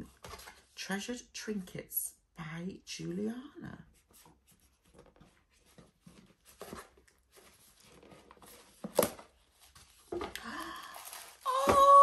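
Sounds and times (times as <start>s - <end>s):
packaging rustling and scraping: 4.2s - 11.5s.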